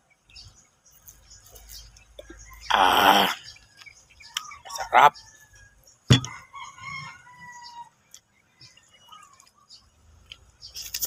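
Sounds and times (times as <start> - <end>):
distant rooster crowing: 2.3 - 7.9.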